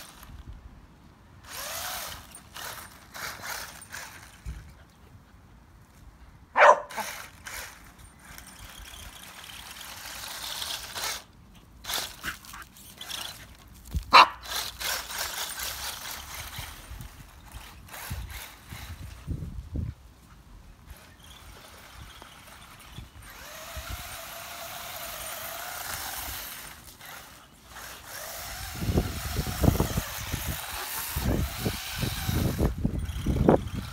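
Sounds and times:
remote-control buggy motor whine: 0.0 - 0.6, 1.4 - 4.7, 6.9 - 19.6, 20.8 - 33.9
dog barking loudly: 6.6 - 7.1, 14.1 - 14.4.

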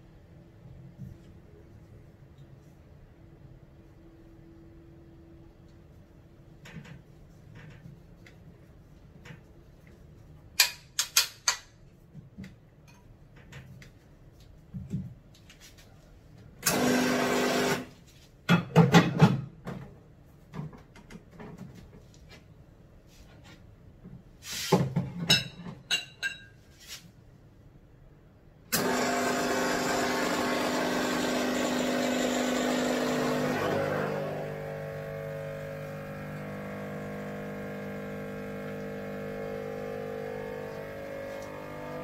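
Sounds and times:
espresso machine pump running: 16.7 - 17.9, 28.8 - 42.0.

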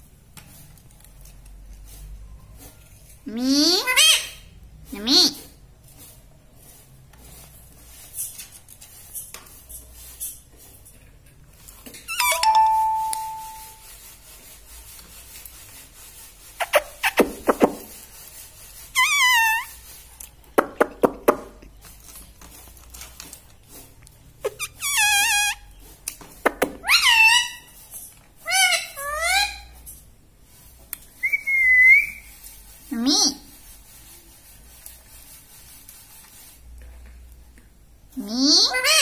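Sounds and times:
parakeets squeaky calls: 3.8 - 4.4, 12.1 - 13.6, 19.0 - 19.8, 24.4 - 25.6, 26.8 - 27.8, 28.4 - 29.7.

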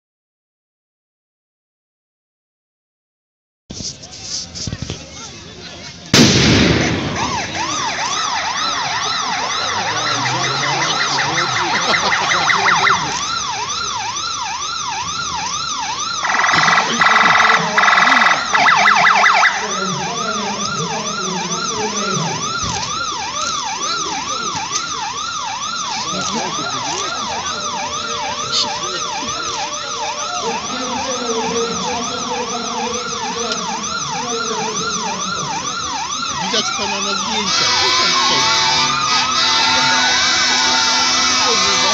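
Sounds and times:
emergency sirens wailing: 5.5 - 41.9
loud horn blasts: 37.3 - 41.9.

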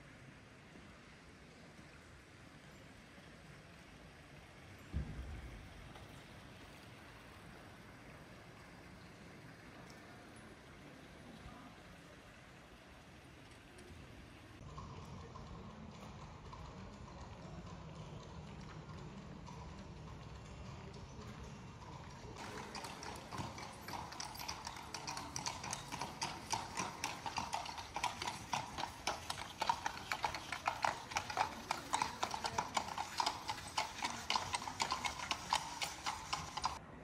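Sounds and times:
horse hooves clip-clopping on cobblestones: 14.6 - 36.8.

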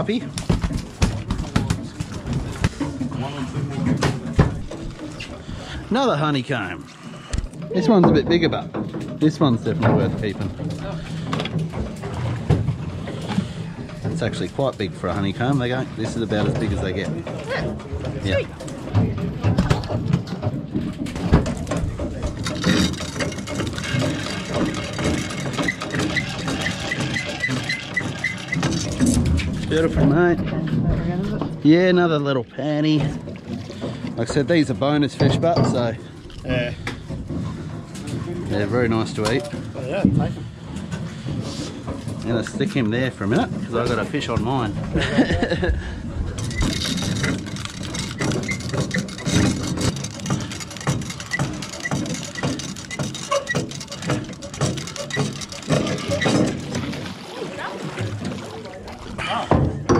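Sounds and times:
boat engine idling: 0.0 - 59.9
reel clicks and knocks: 7.3 - 31.5, 46.3 - 57.1
fishing reel ticking: 22.4 - 29.1, 46.4 - 56.8.

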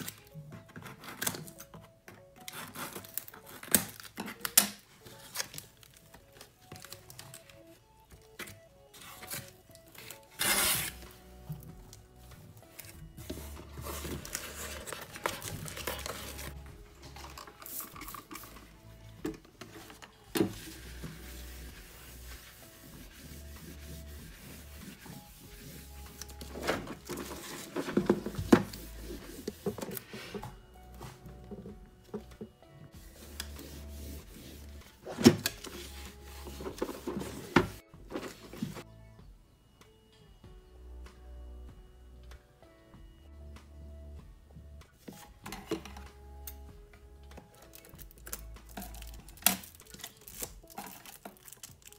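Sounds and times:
soft background music: 0.0 - 51.9
shrink-wrap crinkling: 2.5 - 8.3, 13.8 - 18.7, 47.4 - 51.9.

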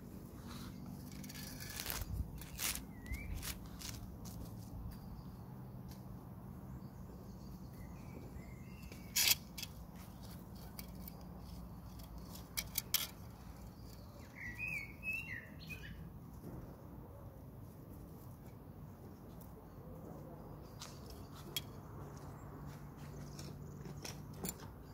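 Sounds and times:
small birds chirping: 0.2 - 16.4
hand rake clicking in soil: 0.4 - 4.4, 8.8 - 14.2.

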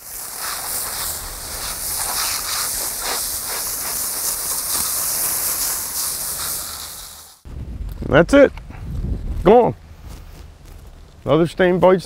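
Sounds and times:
hose nozzle spraying water on roof: 0.0 - 7.4.

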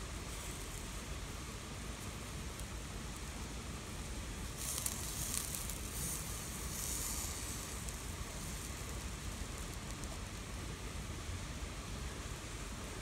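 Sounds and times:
mushrooms sizzling on grill: 0.0 - 13.0
steady background hiss: 0.0 - 13.0.

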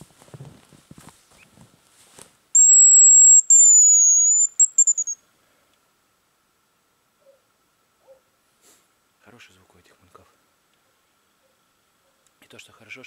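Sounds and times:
faint rustling: 0.0 - 2.4
high whistle bird call: 2.6 - 5.2.

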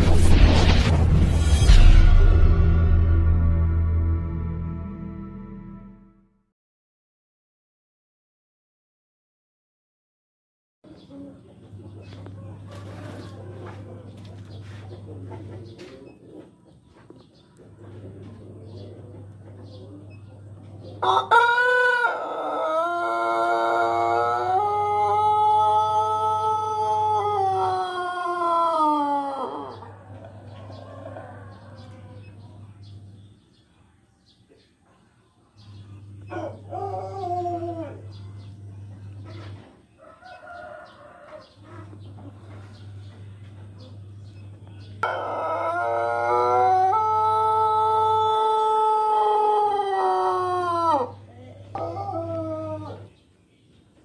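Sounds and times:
rooster crowing: 21.0 - 32.4, 36.2 - 38.2, 39.9 - 42.0, 45.0 - 53.2.

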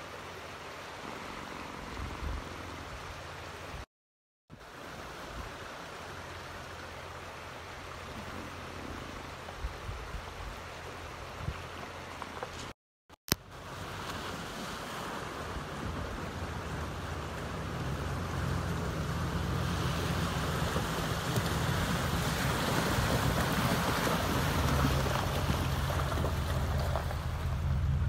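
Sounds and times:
water splashing around tyres: 13.6 - 28.0
truck engine: 16.1 - 28.0.

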